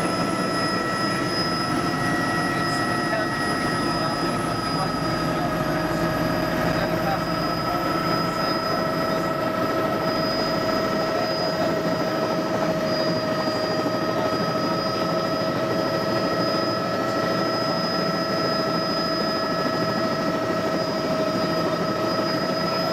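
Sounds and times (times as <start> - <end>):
high whine: 0.0 - 13.8
helicopter roar: 0.0 - 22.9.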